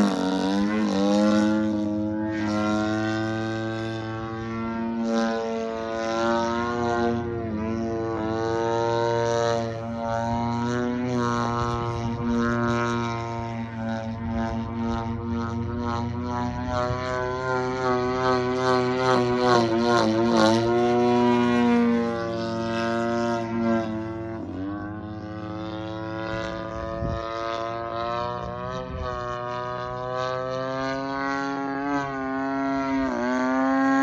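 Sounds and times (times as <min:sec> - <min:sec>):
model plane engine in flight: 0:00.0 - 0:34.0.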